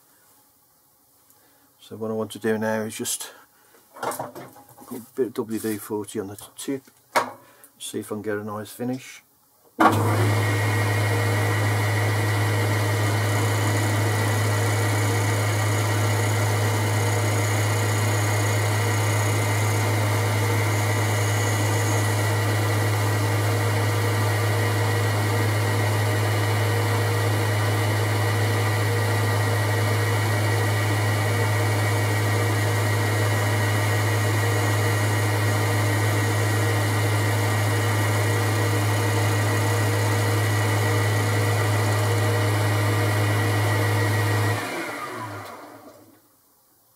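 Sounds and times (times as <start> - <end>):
lathe motor hum with whine: 9.8 - 46.1.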